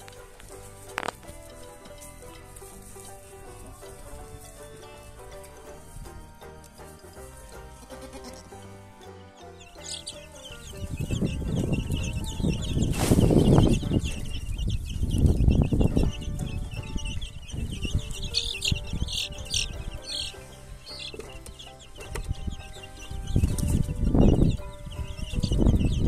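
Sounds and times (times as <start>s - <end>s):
chicks peeping: 0.0s - 26.0s
low rustling bursts: 10.7s - 16.6s.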